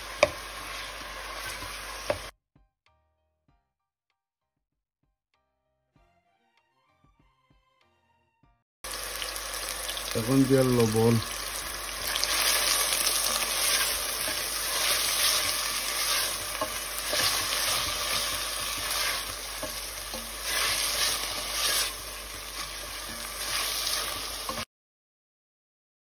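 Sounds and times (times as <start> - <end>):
onions sizzling in hot oil: 0.0 - 2.3, 8.8 - 24.7
wooden spoon stirring: 11.6 - 24.6.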